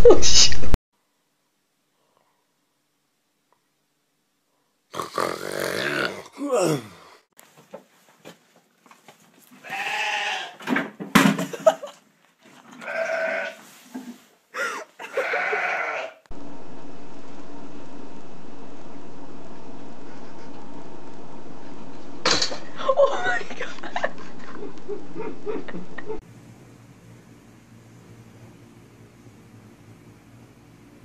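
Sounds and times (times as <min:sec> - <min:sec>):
young goat bleating: 0:09.6 - 0:10.6, 0:12.8 - 0:13.6, 0:15.0 - 0:16.2.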